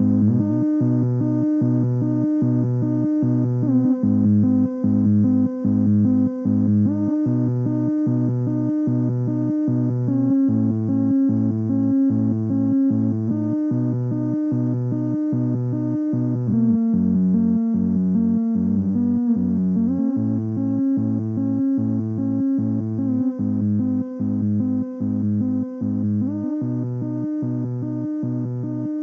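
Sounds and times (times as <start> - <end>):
synthesizer playing ambient sequence: 0.0 - 29.0.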